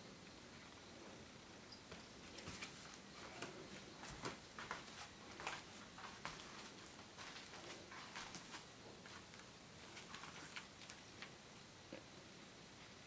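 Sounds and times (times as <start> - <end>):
footsteps on wooden floorboards: 1.9 - 9.3.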